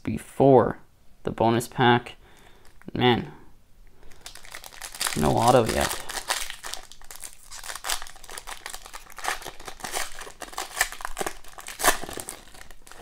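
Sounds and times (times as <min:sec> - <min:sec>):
foil wrapper tearing and crinkling: 0:04.1 - 0:13.0.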